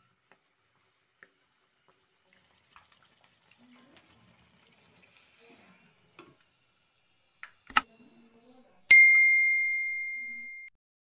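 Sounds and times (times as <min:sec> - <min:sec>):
sharp click: 0:07.7 - 0:07.9
bright bell ding: 0:08.9 - 0:10.7.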